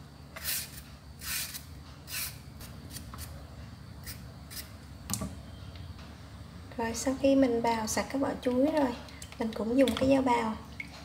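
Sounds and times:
vegetable peeler scraping: 0.4 - 3.4, 4.0 - 4.8.

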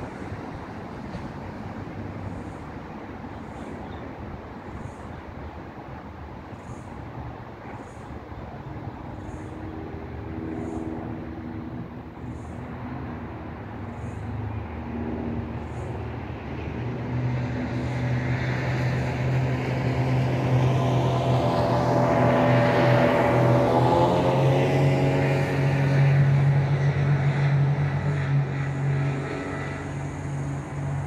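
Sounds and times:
speedboat engine passing: 0.0 - 31.0.

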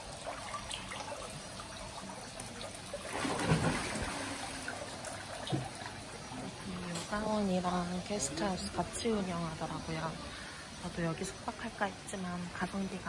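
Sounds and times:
water trickling: 0.0 - 13.0.

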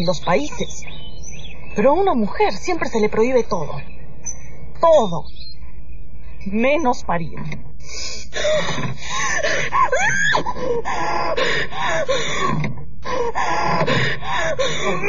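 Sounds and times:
woman gasping and moaning: 7.9 - 15.0.

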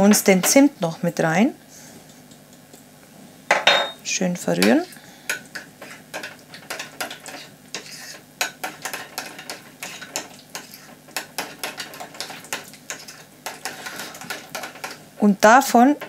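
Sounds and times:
spoon clinking in ceramic bowl: 3.5 - 4.0.

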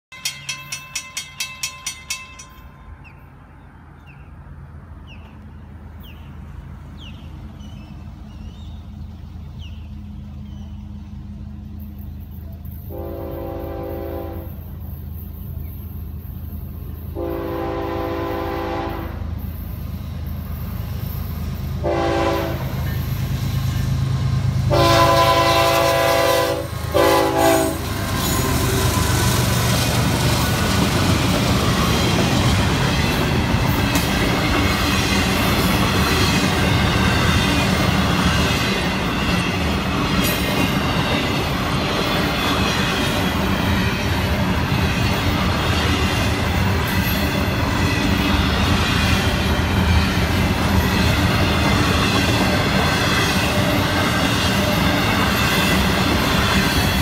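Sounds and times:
railroad crossing bell ringing: 0.1 - 4.1, 11.3 - 57.0
diesel engines rumbling: 2.6 - 57.0
locomotive horn blasts: 12.9 - 14.7, 17.2 - 19.3, 21.8 - 23.0, 24.6 - 28.9.

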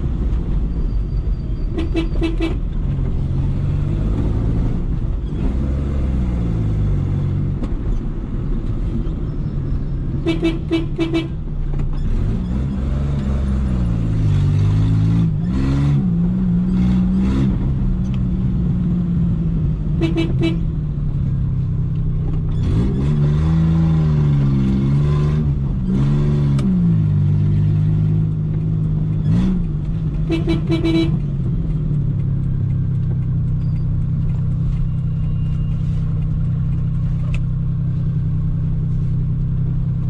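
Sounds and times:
car horn short toots: 1.7 - 2.6, 10.2 - 11.4, 20.0 - 20.6, 30.2 - 31.2
car engine revving: 10.2 - 21.4, 22.4 - 34.9.

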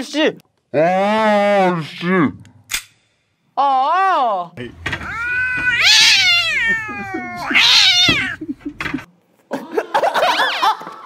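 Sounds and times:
cat yowling: 4.9 - 8.4.

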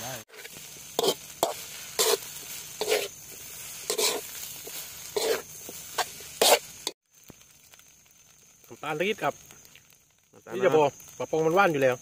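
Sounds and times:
food sizzling: 0.0 - 12.0
metal spatula scraping wok: 0.2 - 7.0.

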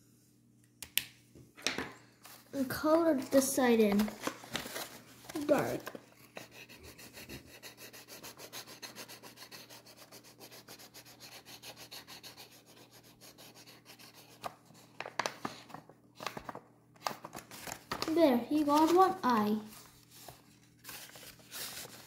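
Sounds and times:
marker scribbling on paper: 6.4 - 14.5.

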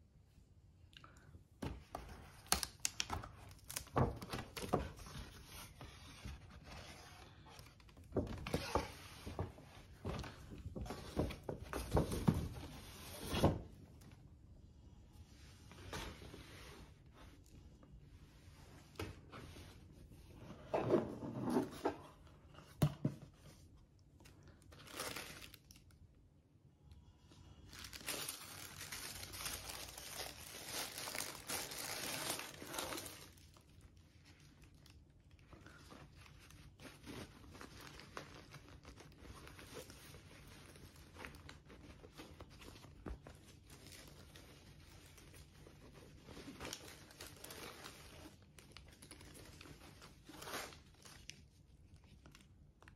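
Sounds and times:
wrapping crinkling and rustling: 2.0 - 14.4, 23.3 - 26.2, 27.4 - 52.9.

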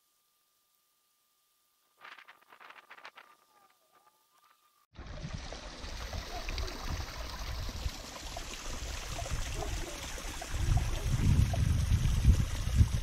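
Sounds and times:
water trickling and splashing: 4.9 - 13.0.

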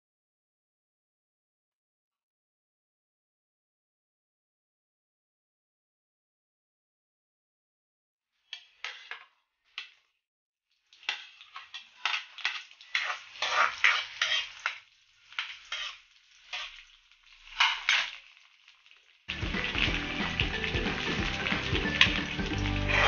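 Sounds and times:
spatula scraping a wok: 8.4 - 10.1, 10.9 - 18.6, 19.6 - 23.0
onions sizzling in oil: 10.8 - 23.0
music: 19.3 - 23.0.

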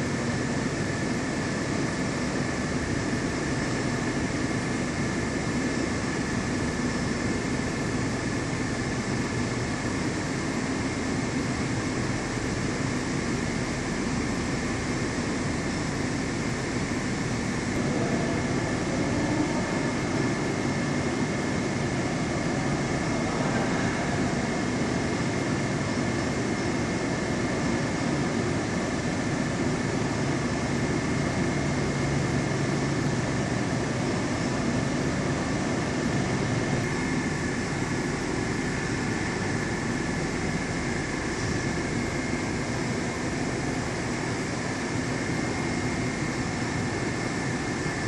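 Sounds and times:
faint high whine: 16.2 - 25.5
machinery hum and rushing: 16.2 - 48.0.

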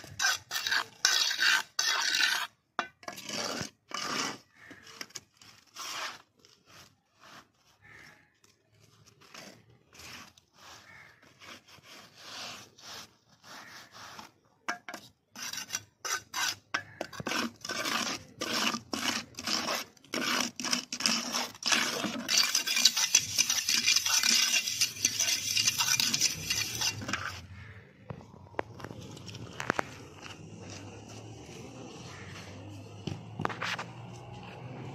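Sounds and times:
trowel scraping wet cement: 0.0 - 34.9.

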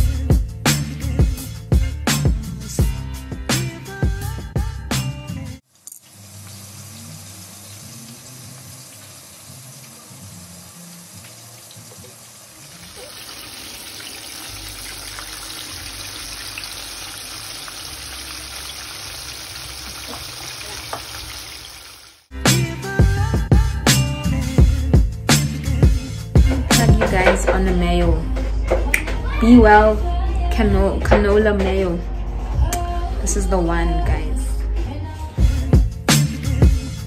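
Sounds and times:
water running from a tap: 5.9 - 22.3.

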